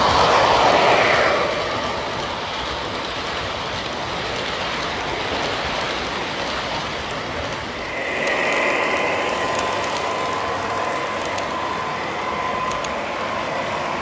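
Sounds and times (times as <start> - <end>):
model train wheels on rails: 0.0 - 14.0
higher hiss: 7.7 - 14.0.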